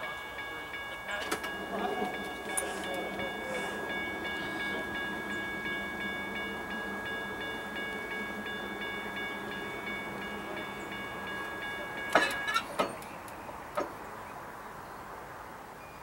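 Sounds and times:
train rumble: 0.0 - 14.6
train air horn chord: 1.2 - 12.6.

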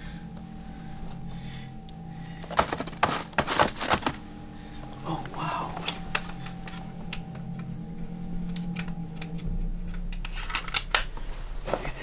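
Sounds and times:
deeper hum: 0.0 - 12.0
steady low hum: 0.0 - 12.0
debris crackling on floor: 2.4 - 4.3.

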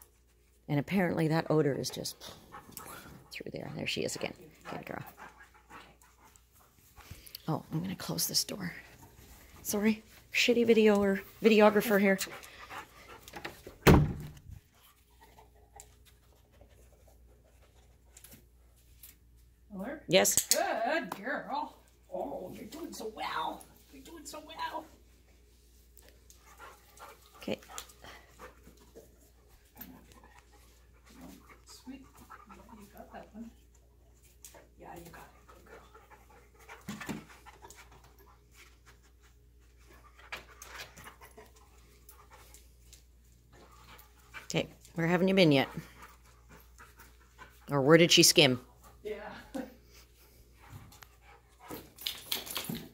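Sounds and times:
dog panting and sniffing: 0.0 - 13.8, 14.5 - 19.4, 23.6 - 52.9.

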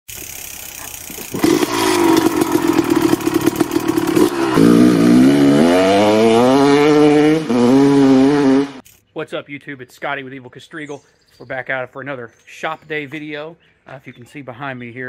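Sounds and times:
dirt bike engine revving: 0.1 - 8.8.

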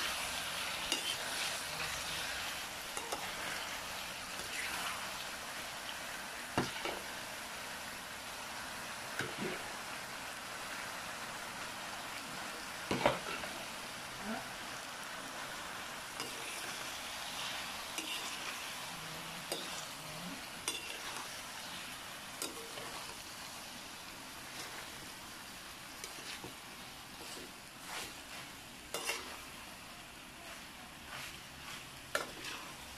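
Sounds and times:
metal spoon scraping a pan: 0.0 - 5.1, 16.2 - 18.8, 19.4 - 20.0, 20.6 - 21.4, 22.4 - 23.2, 26.0 - 26.6, 27.2 - 29.5, 31.1 - 32.9
food sizzling in a pan: 0.0 - 32.9.

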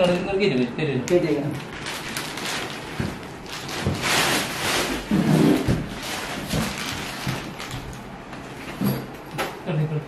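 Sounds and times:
foam and cardboard rustling: 1.8 - 7.8.

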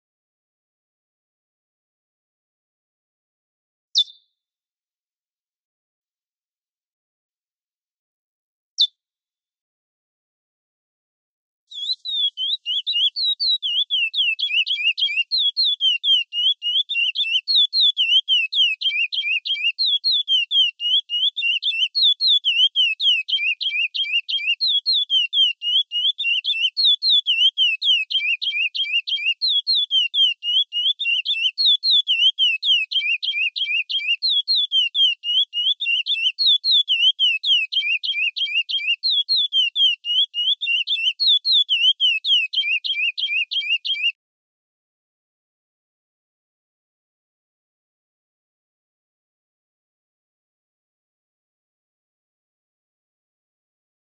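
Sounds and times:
finch singing high whistled notes: 11.7 - 44.2.

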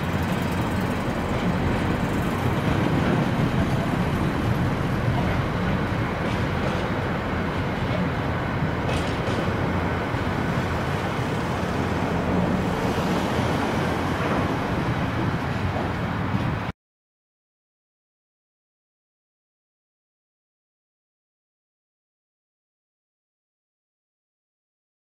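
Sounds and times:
freight train wheels on rails: 0.0 - 16.7.

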